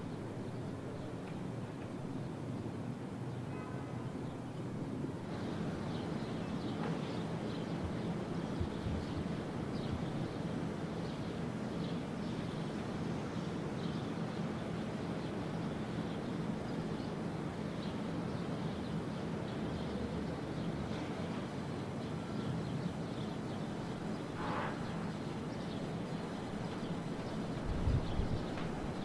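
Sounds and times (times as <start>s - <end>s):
low rumble of city ambience: 0.0s - 29.0s.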